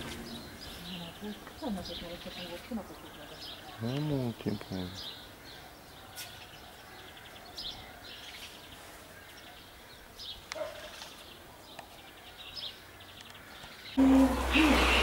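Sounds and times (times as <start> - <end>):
lower bird call: 13.3 - 15.0.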